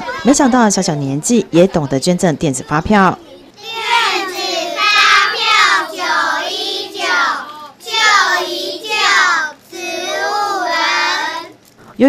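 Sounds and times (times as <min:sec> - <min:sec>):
children chanting in unison: 0:03.6 - 0:11.5.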